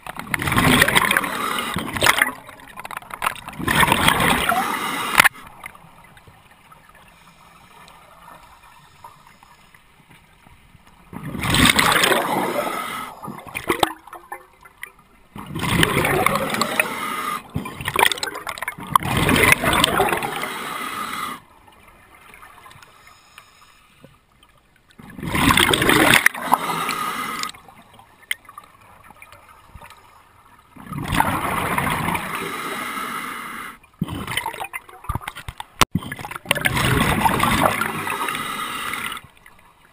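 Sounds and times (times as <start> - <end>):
diver exhaling bubbles: 11.2 - 14.4, 15.4 - 21.4.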